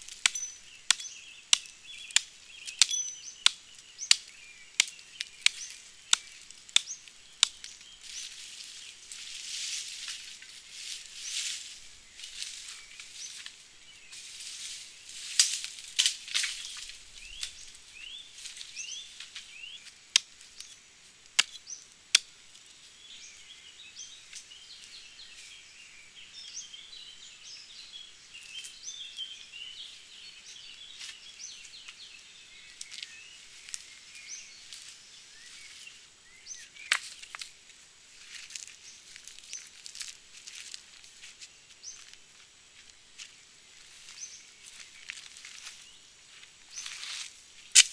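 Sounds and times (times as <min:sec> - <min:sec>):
dry leaves rustling: 0:00.0 - 0:23.4, 0:30.9 - 0:47.9
small birds chirping: 0:00.0 - 0:47.9
wooden branches cracking and knocking: 0:14.3 - 0:17.8.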